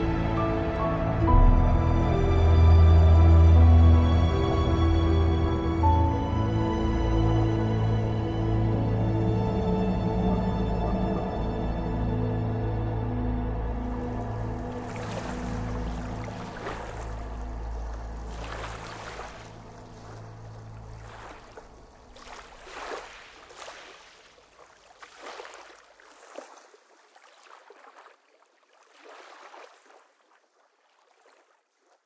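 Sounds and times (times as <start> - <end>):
water lapping: 13.3 - 32.0.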